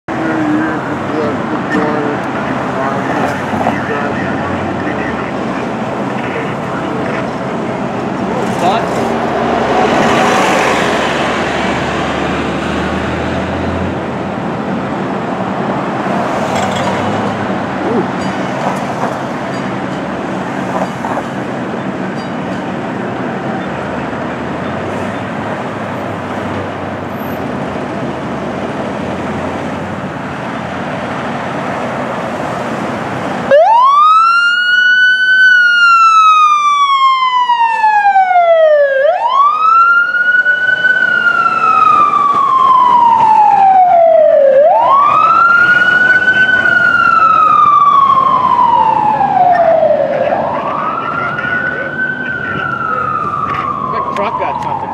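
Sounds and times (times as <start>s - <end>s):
fire engine rumble: 0.1s - 54.9s
siren wailing: 33.5s - 54.9s.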